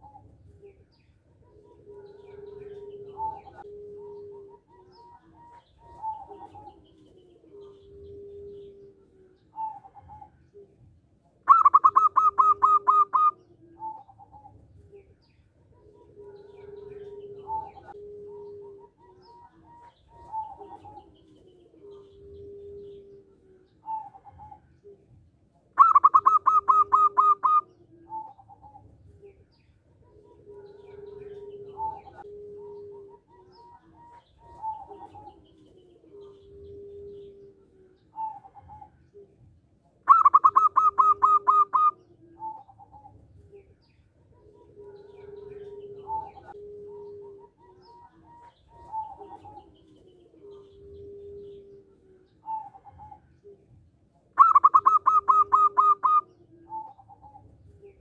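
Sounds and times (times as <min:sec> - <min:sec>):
soft dove coos: 0:00.0 - 0:58.0
dove singing quick notes: 0:11.5 - 0:14.4, 0:25.8 - 0:28.6, 0:40.1 - 0:43.0, 0:54.4 - 0:57.4.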